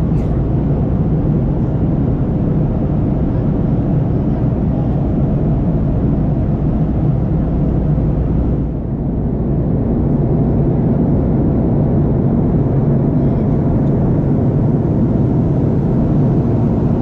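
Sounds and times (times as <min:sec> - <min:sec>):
airliner cabin engine rumble: 0:00.0 - 0:17.0.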